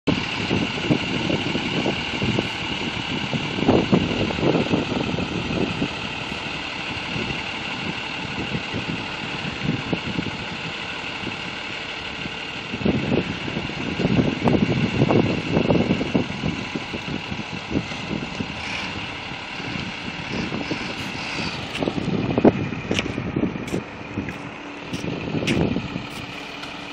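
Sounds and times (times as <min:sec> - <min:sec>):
wind buffeting microphone: 0:00.1 - 0:11.6, 0:12.2 - 0:26.9
distant truck engine running: 0:00.1 - 0:26.9.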